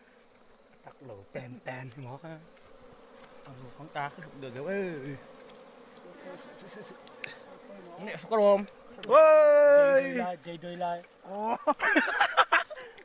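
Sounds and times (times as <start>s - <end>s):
honeybees buzzing: 0.0s - 13.0s.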